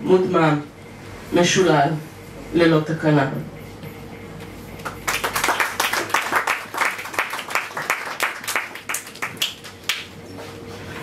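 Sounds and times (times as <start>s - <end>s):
small audience applauding: 4.8s - 10.2s.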